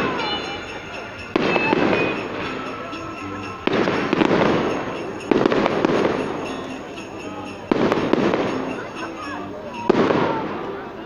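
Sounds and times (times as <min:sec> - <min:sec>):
firework shells booming: 0:01.1 - 0:09.1, 0:09.8 - 0:10.7.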